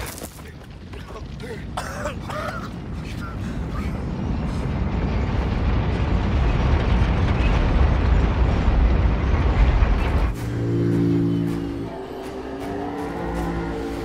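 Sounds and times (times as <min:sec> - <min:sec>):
deep machinery rumble: 0:00.4 - 0:14.0
held low chord: 0:10.3 - 0:14.0.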